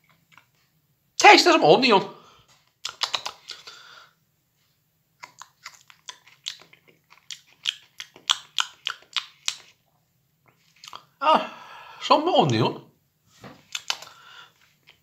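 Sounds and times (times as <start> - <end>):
person chewing: 0.0 - 0.7, 2.6 - 4.0, 5.1 - 11.2, 13.6 - 15.0.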